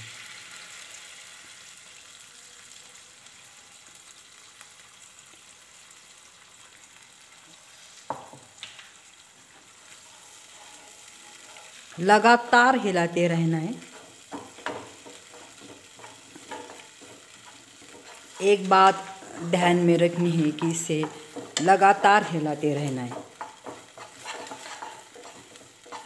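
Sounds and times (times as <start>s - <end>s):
spices sizzling in oil: 0.0s - 26.0s
wooden spatula stirring: 9.5s - 12.1s, 13.8s - 26.0s.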